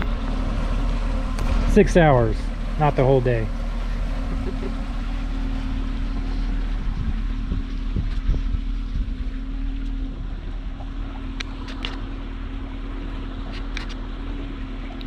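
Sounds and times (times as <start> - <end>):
outboard motor running: 0.0 - 15.0
wind on microphone: 6.7 - 9.5.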